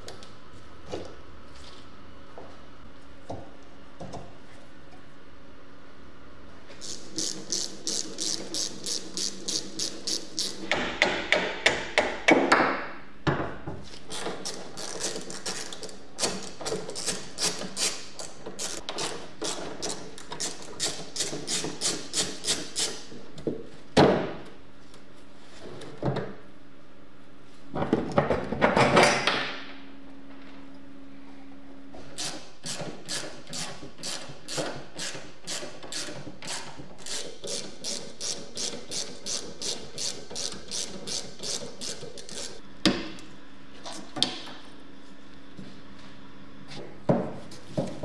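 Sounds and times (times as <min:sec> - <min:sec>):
ratchet wrench clicking: 0:35.0 - 0:42.6.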